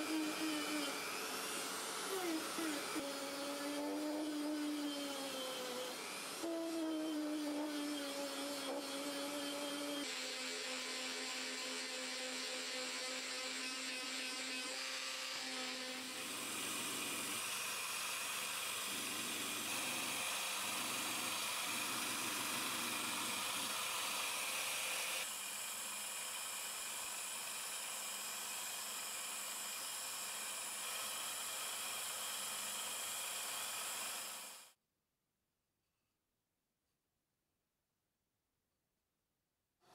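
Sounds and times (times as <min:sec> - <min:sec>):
bench disc sander running: 0:00.0 - 0:10.1, 0:16.0 - 0:34.7
electric detail sander on wood: 0:00.0 - 0:34.6.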